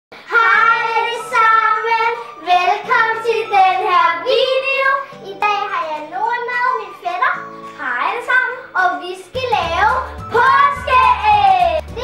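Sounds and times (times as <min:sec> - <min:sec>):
children singing together: 0:00.2 - 0:05.0.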